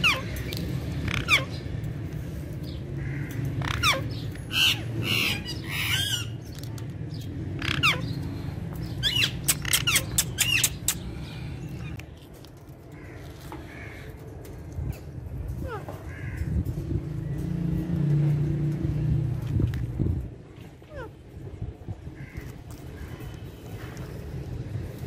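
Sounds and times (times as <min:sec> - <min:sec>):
parakeets squawking: 0:00.0 - 0:02.0, 0:03.0 - 0:06.6, 0:07.4 - 0:12.0
steady low rumble: 0:00.0 - 0:25.0.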